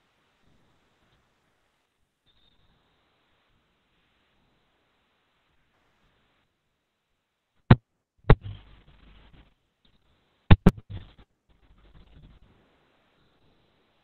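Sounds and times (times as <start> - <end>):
sharp clicks: 8.3 - 8.6, 10.5 - 11.1.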